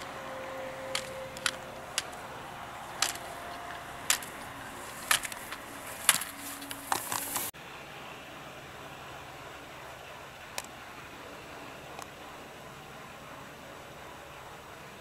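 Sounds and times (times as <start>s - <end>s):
slalom poles knocked: 0.0s - 7.5s
steady hiss: 0.0s - 7.5s.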